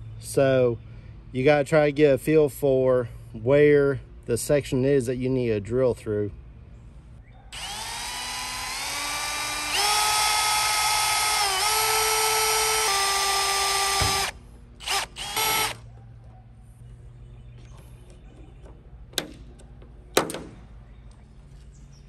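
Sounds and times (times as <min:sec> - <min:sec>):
electric drill drilling into plastic: 0:07.6 - 0:15.8.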